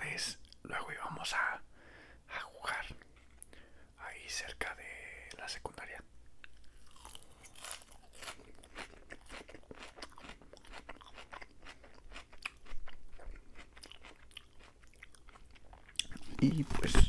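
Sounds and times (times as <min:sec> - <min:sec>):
person chewing crunchy salad: 0:06.4 - 0:16.8.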